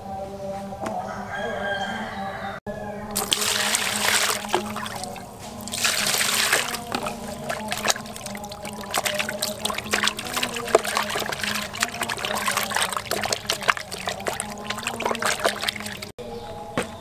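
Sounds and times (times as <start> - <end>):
rooster crowing: 0.9 - 3.2
water pouring into plastic basin: 3.2 - 16.1.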